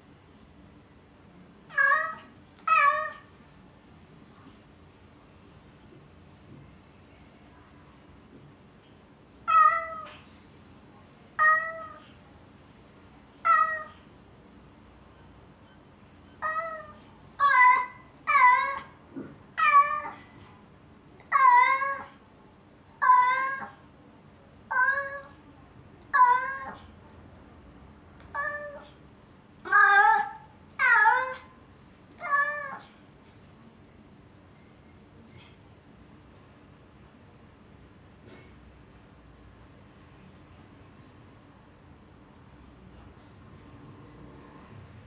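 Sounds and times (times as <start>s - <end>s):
cat meowing: 1.7s - 3.3s, 9.5s - 10.2s, 11.4s - 12.0s, 13.4s - 14.0s, 16.4s - 19.0s, 23.0s - 23.7s, 24.7s - 25.4s, 26.1s - 26.9s, 28.3s - 29.0s, 29.6s - 31.5s, 32.2s - 32.9s.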